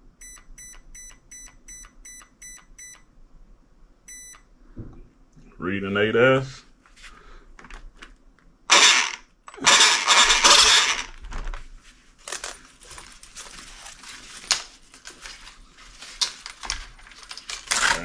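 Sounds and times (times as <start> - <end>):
loud bursts: 8.7 - 11.2
cover rustling: 11.2 - 18.0.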